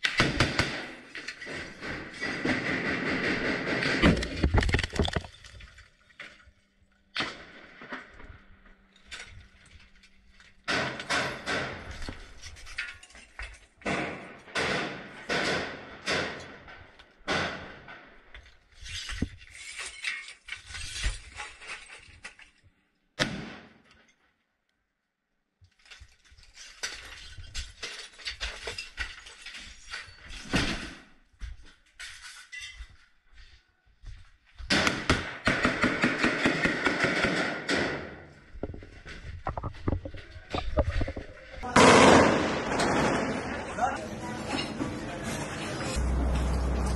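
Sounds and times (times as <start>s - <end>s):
rapid clattering and knocking: 38.5s - 41.6s.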